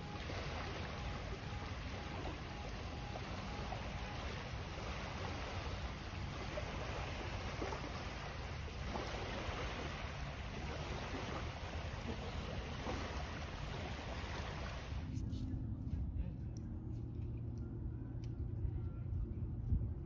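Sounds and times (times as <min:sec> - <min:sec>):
small waves lapping on sand: 0:00.0 - 0:15.2
wind rumble on microphone: 0:00.0 - 0:20.0.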